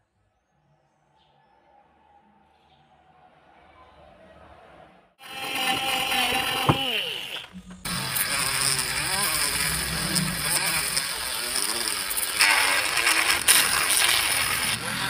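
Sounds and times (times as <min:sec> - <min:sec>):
mini drill boring into metal: 0:05.2 - 0:15.0
rotary tool grinding metal: 0:05.2 - 0:15.0.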